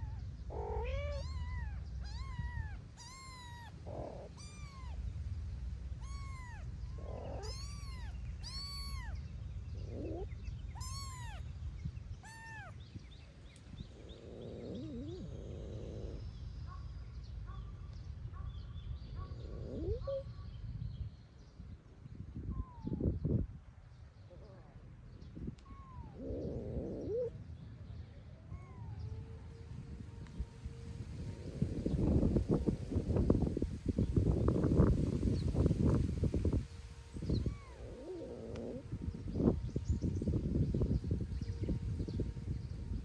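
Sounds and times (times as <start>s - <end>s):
kitten mewing: 0.0s - 5.0s, 6.0s - 9.2s, 9.8s - 11.4s, 12.2s - 12.8s
lower cat calls: 0.0s - 5.1s, 6.0s - 13.0s, 13.6s - 16.3s, 19.2s - 20.4s, 25.6s - 27.3s, 28.4s - 29.6s, 37.1s - 39.4s.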